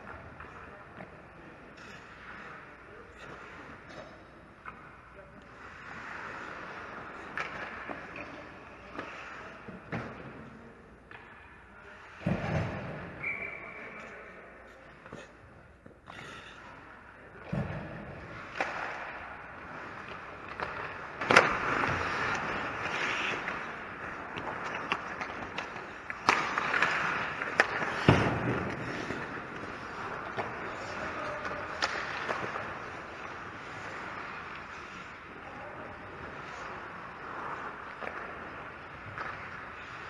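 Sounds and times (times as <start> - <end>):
skate blades scraping ice: 18.3 - 40.0
sticks and puck knocking: 20.0 - 30.6.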